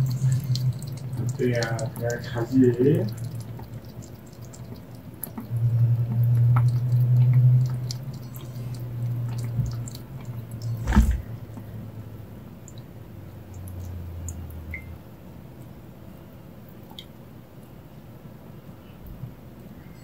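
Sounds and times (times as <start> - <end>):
low hum: 0.0 - 4.5, 5.4 - 11.9
kitten lapping water: 0.0 - 15.0
water fountain ticks and drips: 0.0 - 20.0.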